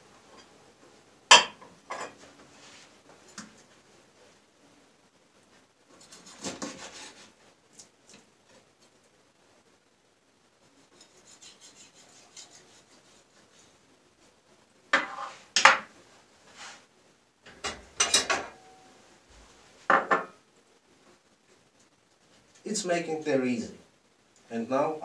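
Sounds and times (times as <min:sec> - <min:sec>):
knife scraping fish: 0:06.0 - 0:07.3, 0:10.8 - 0:13.6.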